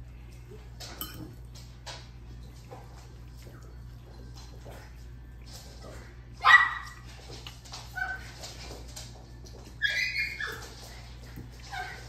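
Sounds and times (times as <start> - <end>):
dog whining and yelping: 9.7 - 11.0, 11.6 - 12.0.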